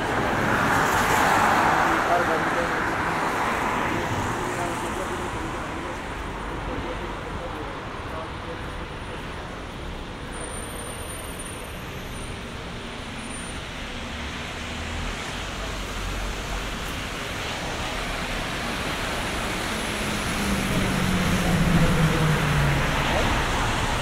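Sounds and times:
bus engine hum: 0:03.8 - 0:24.0
tyres hissing on wet road: 0:12.8 - 0:24.0.

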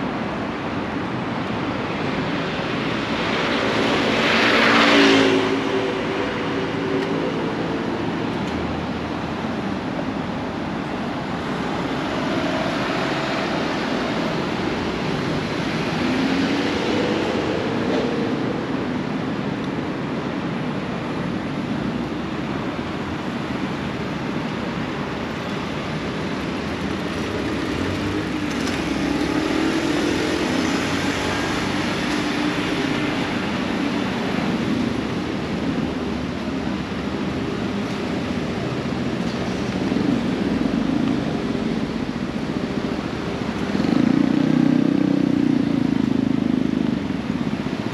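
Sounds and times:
rumble of cars: 0:00.0 - 0:47.9
engines accelerating away: 0:25.8 - 0:37.3.

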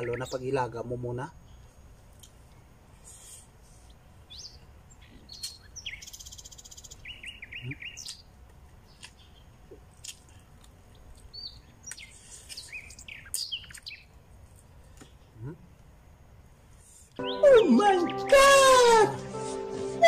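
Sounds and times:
small birds chirping: 0:00.0 - 0:19.7.

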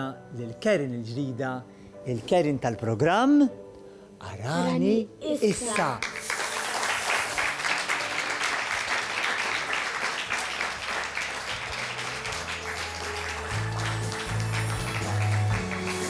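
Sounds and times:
music: 0:00.0 - 0:16.0
studio audience applauding: 0:05.6 - 0:16.0.

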